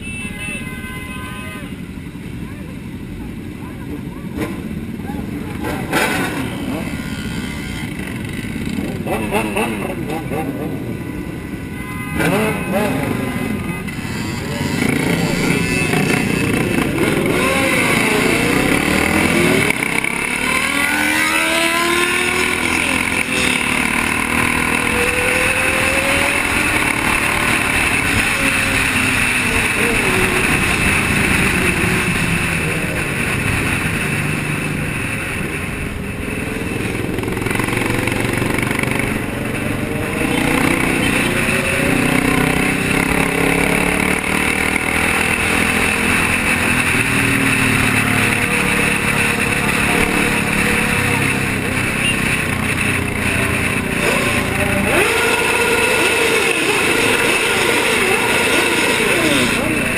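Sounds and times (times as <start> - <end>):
motorcycle engines revving: 1.7 - 59.9
steady rushing noise: 13.1 - 59.9.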